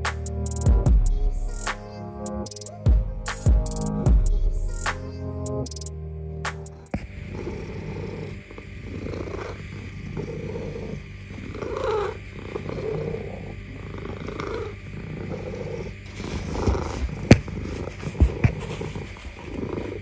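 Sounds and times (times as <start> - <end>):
cat purring: 7.0 - 20.0.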